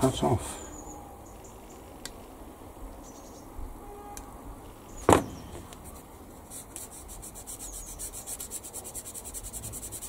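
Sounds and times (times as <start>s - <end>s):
hand sanding plastic: 5.7s - 10.0s.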